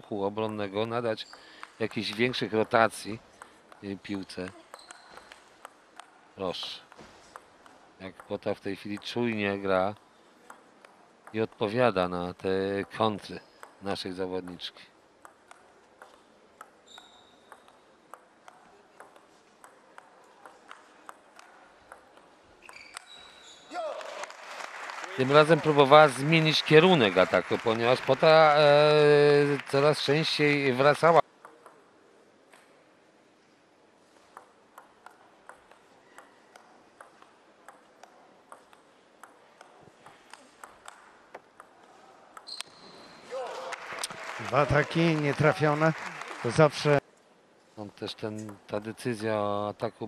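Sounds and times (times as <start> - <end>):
table tennis ball knocking: 6.8 - 9.2, 10.0 - 11.6, 13.6 - 13.8, 15.2 - 22.8, 34.3 - 42.5
table tennis ball hits: 15.2 - 23.1.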